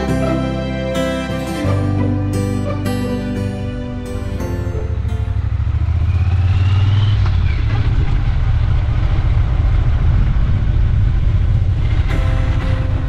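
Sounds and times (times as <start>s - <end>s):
motorcycle engine rumbling: 3.8s - 13.0s.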